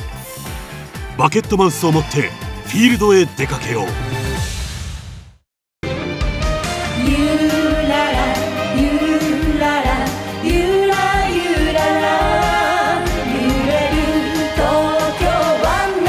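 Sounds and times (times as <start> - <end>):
woman singing pop song: 6.9 - 16.0.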